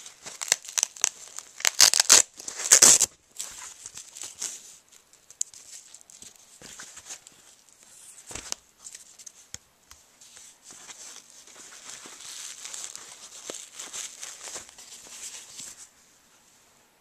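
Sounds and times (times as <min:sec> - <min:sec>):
velcro ripping: 0:00.2 - 0:03.1.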